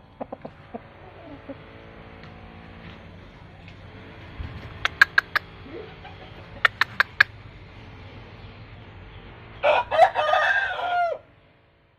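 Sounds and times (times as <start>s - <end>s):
rooster crowing: 9.6s - 11.3s.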